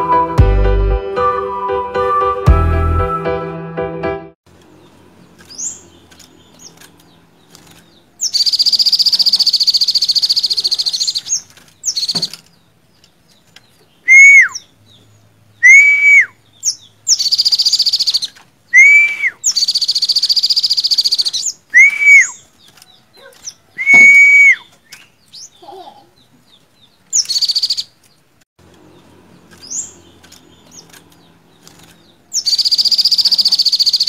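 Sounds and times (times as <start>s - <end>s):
bird whistled notes: 15.6s - 16.4s, 18.8s - 22.4s, 23.8s - 24.7s, 32.4s - 34.0s.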